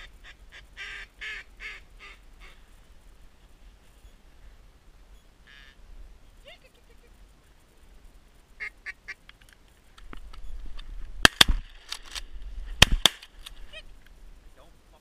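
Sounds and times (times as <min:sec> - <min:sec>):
shotgun shots: 0:12.8 - 0:13.3.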